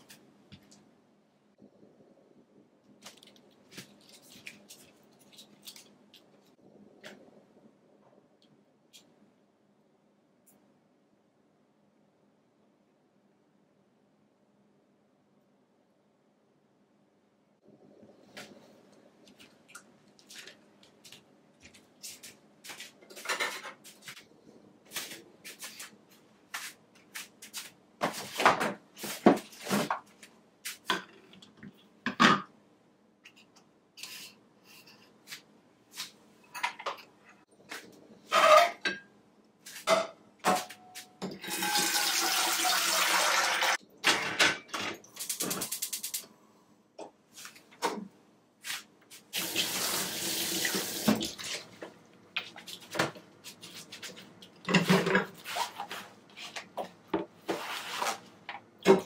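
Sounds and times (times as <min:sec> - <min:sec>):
water running: 0:41.4 - 0:43.8, 0:49.3 - 0:52.9.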